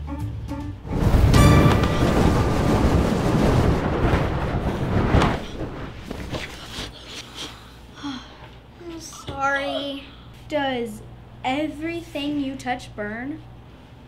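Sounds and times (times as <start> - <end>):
deep roar of fire: 0.9 - 6.3.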